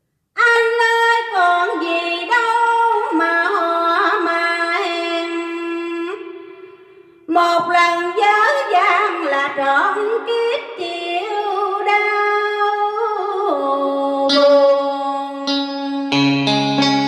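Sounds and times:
woman singing: 0.4s - 16.1s
karaoke backing track: 7.3s - 17.0s.

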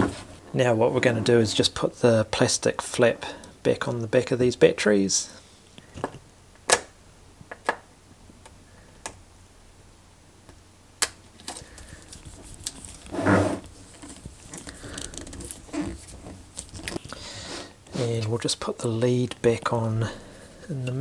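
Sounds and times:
handling noise: 11.4s - 17.2s.

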